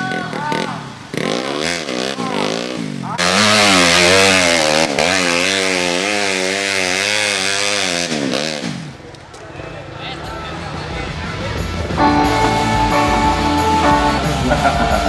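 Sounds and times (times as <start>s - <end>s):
motorcycle engine revving hard: 0.0s - 9.0s.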